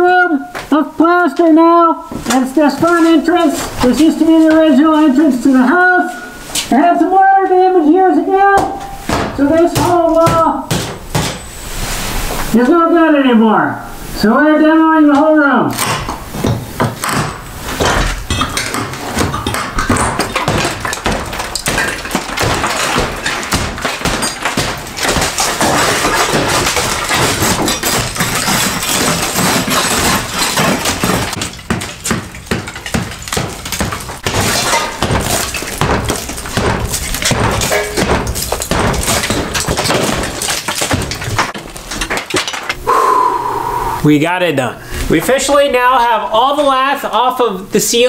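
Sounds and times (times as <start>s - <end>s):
chunks falling: 8.3s - 11.4s, 15.2s - 42.8s
plaster cracking: 8.4s - 11.4s, 15.7s - 42.8s.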